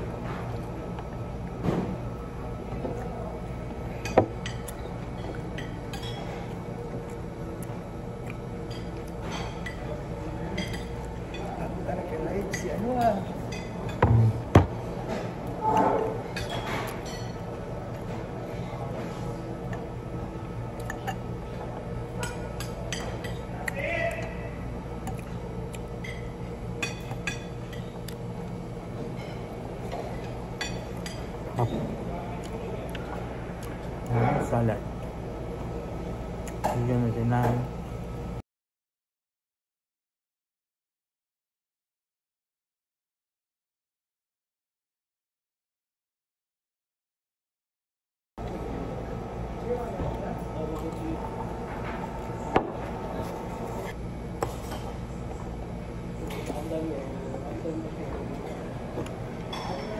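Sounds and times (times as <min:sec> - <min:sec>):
steady low hum: 0:00.0 - 0:38.4, 0:48.4 - 0:59.9
dishes and cutlery clinking: 0:04.0 - 0:06.5, 0:08.7 - 0:11.6, 0:15.1 - 0:17.4, 0:22.2 - 0:23.5, 0:59.5 - 0:59.9
cutlery and dishes clinking: 0:15.2 - 0:17.4.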